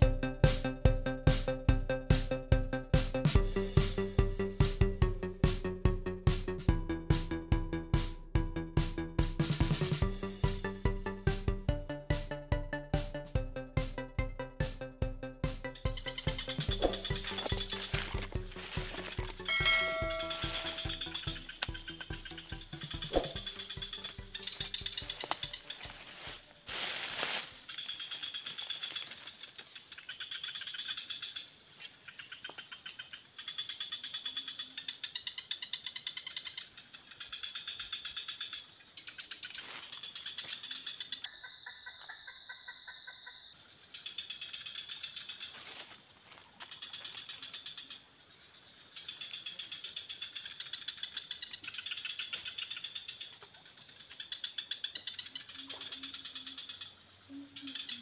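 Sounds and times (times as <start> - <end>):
insects pulsing chirps: 9.7 - 58.0
insects high-pitched whine: 13.9 - 58.0.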